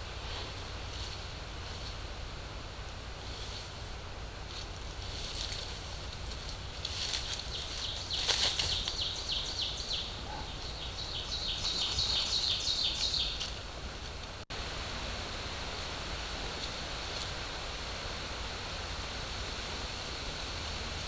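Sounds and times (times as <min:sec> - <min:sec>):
steady hiss: 0:00.0 - 0:21.0
small bird singing: 0:07.2 - 0:13.6.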